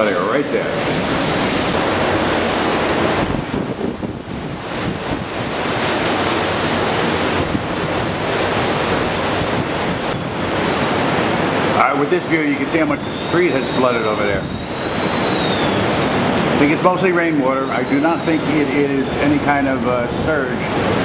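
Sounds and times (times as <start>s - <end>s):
heavy rain: 0.0s - 21.0s
wind rumbling on microphone: 0.0s - 21.0s.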